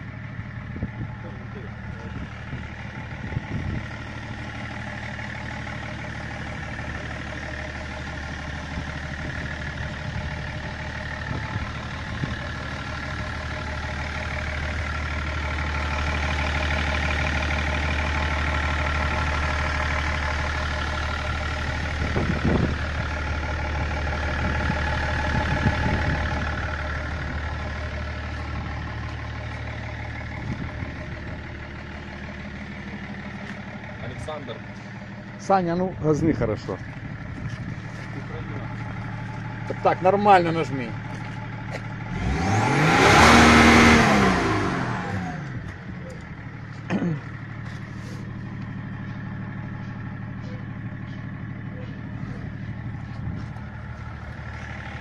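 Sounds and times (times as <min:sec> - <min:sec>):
diesel car engine idling: 0:00.0 - 0:55.0.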